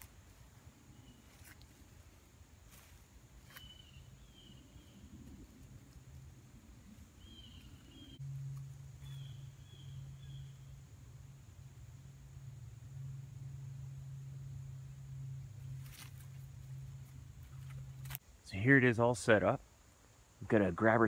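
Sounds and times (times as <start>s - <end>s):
low steady hum: 0.0s - 21.0s
canvas shelter clicks: 17.4s - 18.2s.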